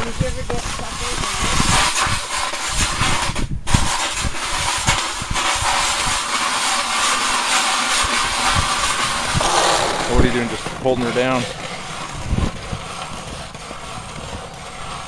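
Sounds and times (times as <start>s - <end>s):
ice auger grinding through ice: 5.6s - 15.0s.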